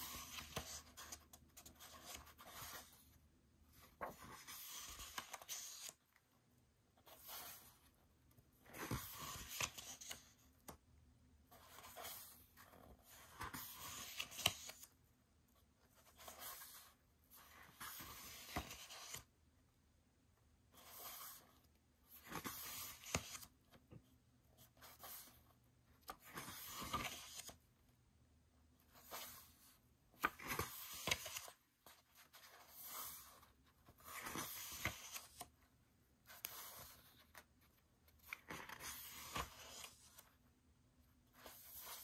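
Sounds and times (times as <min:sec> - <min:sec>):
pages turning and rustling: 0:00.0 - 0:06.2, 0:07.0 - 0:08.0, 0:08.6 - 0:10.8, 0:11.5 - 0:15.0, 0:15.9 - 0:19.3, 0:20.8 - 0:23.9, 0:26.0 - 0:27.6, 0:28.9 - 0:35.6, 0:36.2 - 0:40.3, 0:41.3 - 0:42.0.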